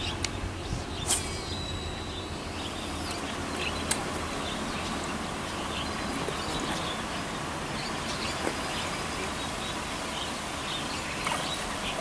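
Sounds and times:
faint bird chirps: 0.0 - 7.1.

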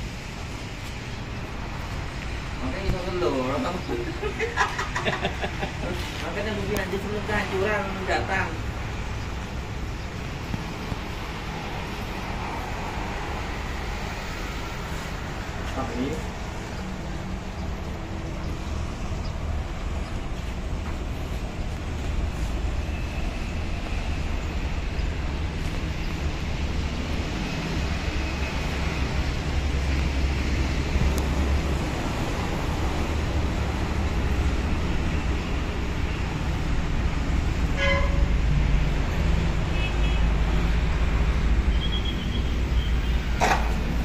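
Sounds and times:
brief horn-like toot: 37.8 - 38.3.

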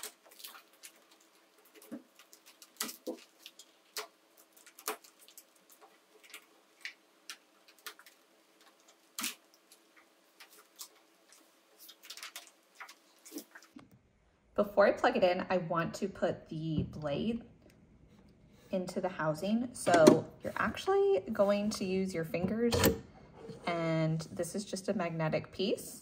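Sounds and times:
plastic hose crinkling and clicking: 0.0 - 14.0.

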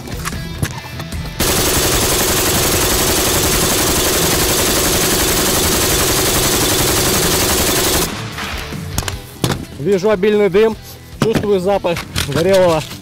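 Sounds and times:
machine gun full-auto burst: 1.4 - 8.2.

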